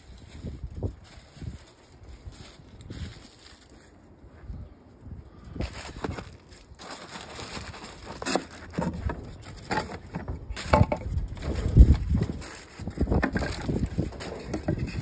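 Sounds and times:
foil crinkling: 0.0 - 4.2, 5.6 - 15.0
wooden boards knocking: 9.7 - 11.1.

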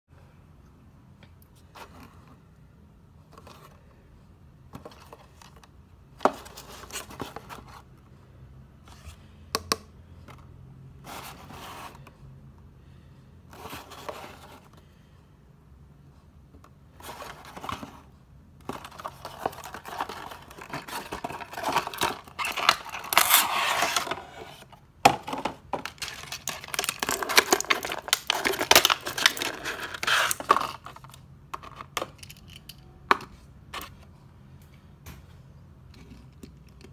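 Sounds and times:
hands handling cardboard box: 4.7 - 7.9, 17.0 - 31.8
plastic rustling and crinkling: 17.0 - 31.2.

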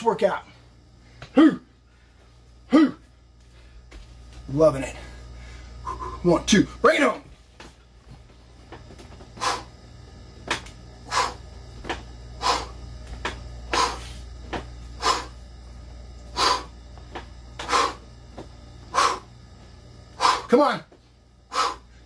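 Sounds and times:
steady low hum: 0.0 - 22.0
man blowing out breath: 16.3 - 16.7, 18.9 - 19.3, 20.1 - 20.5, 21.5 - 22.0.

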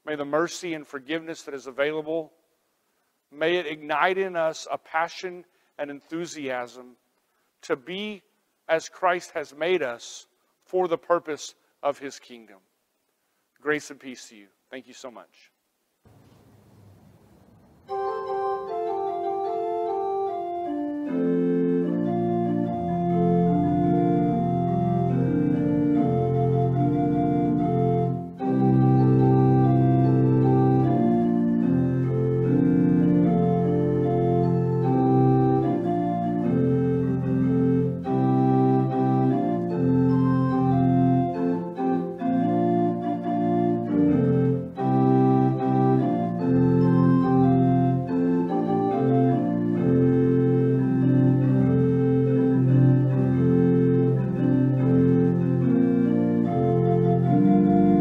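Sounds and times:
church organ chords: 17.8 - 58.0.

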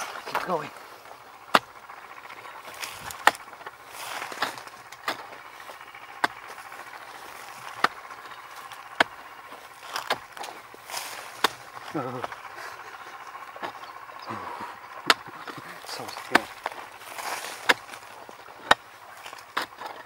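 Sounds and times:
digging tool chopping into earth: 0.0 - 20.0
soil scraping: 0.0 - 20.0.

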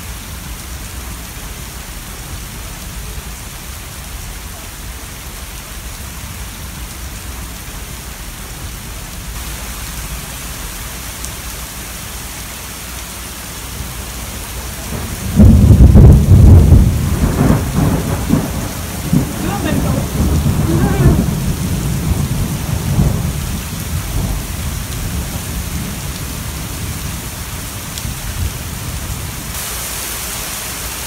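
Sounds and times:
heavy rain pouring onto a lake: 0.0 - 31.0
loud thunder clap rumbling: 14.8 - 29.5.

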